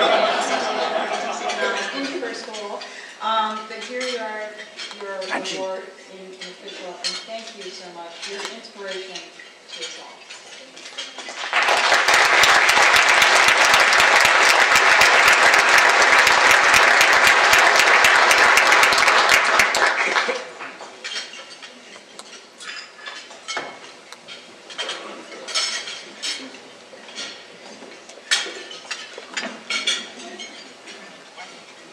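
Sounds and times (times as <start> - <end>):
low room murmur: 0.0 - 31.9
audience applauding: 11.3 - 20.7.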